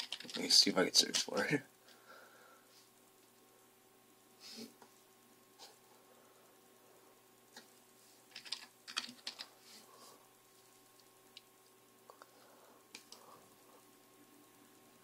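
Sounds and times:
computer keyboard typing: 0:00.0 - 0:00.5, 0:08.3 - 0:09.5.

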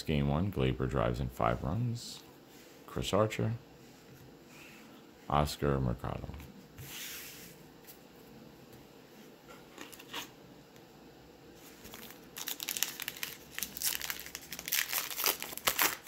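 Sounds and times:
wrapper crinkling and tearing: 0:11.8 - 0:16.0.

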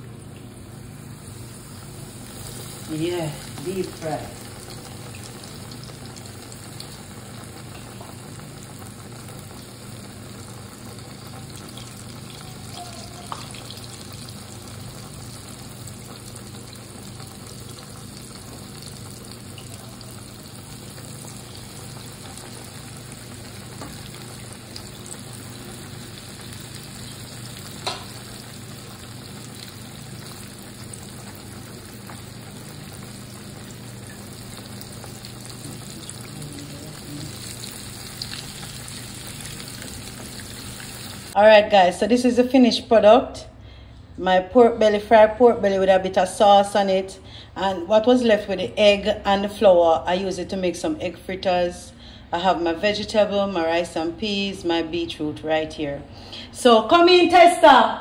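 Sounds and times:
pork deep frying in oil: 0:00.0 - 0:41.4.

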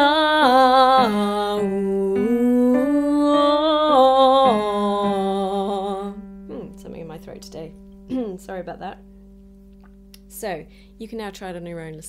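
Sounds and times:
person singing vocal exercise: 0:00.0 - 0:06.8
steady held low note: 0:01.6 - 0:12.0.

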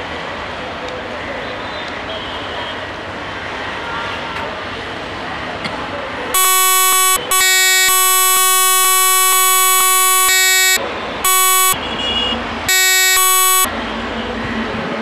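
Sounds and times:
locomotive air horn blasts: 0:06.4 - 0:13.7.

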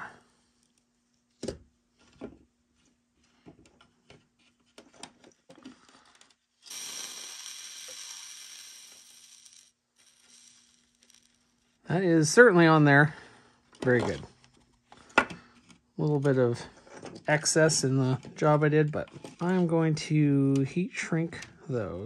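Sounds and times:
solder flux sizzling: 0:06.6 - 0:11.8.

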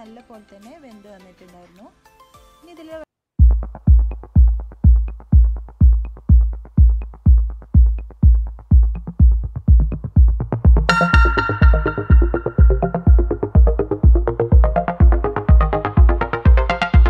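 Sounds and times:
electronic kick-drum beat: 0:03.4 - 0:17.0
sustained synth chords: 0:10.8 - 0:17.0.

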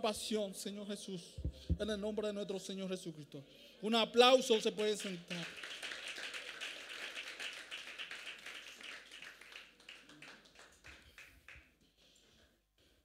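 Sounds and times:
congregation applauding: 0:04.6 - 0:11.7.

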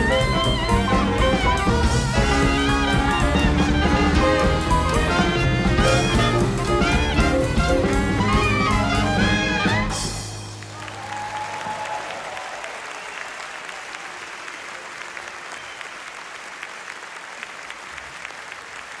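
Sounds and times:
big band held chord: 0:00.0 - 0:10.9
audience applauding: 0:00.0 - 0:19.0.

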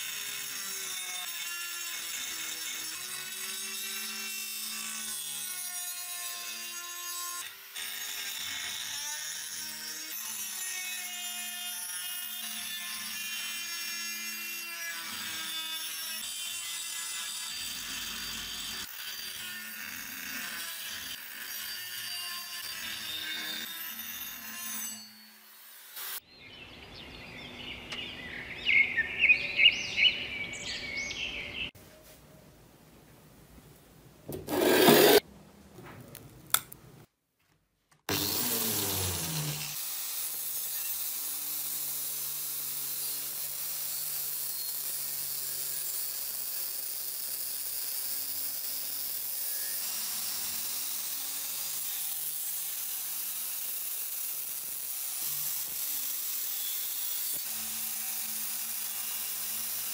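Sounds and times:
angle grinder grinding steel: 0:00.0 - 0:26.2, 0:34.3 - 0:35.2, 0:38.1 - 0:59.9
scraping and handling: 0:34.3 - 0:35.2.

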